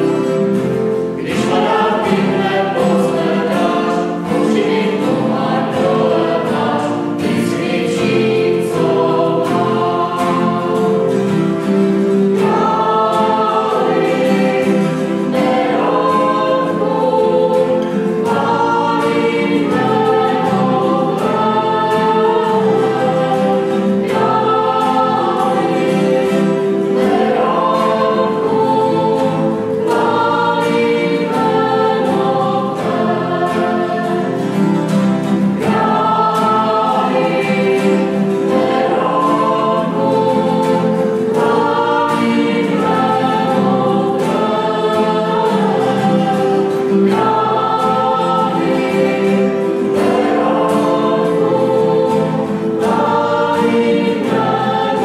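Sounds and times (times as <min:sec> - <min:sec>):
acoustic guitar: 0:00.0 - 0:55.0
choir singing: 0:00.0 - 0:55.0
keyboard: 0:00.0 - 0:55.0.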